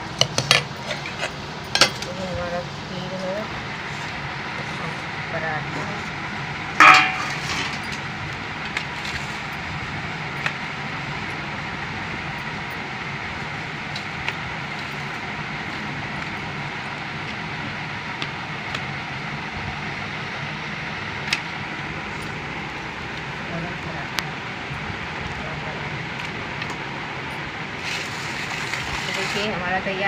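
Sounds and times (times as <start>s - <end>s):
background hum and hiss: 0.0s - 30.0s.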